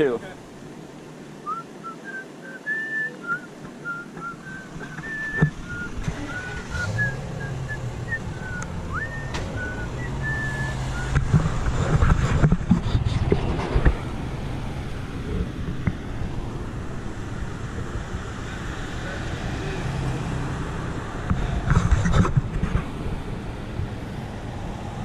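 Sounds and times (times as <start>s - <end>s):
low engine hum: 0.0s - 25.0s
person whistling a tune: 1.5s - 11.2s.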